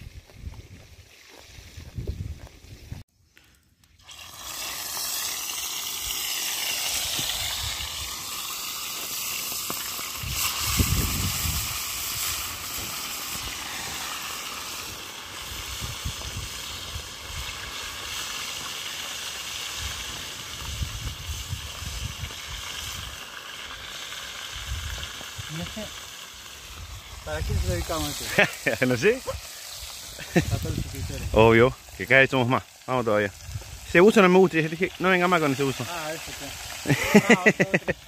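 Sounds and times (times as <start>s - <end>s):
fish frying in hot oil: 4.0s - 38.0s.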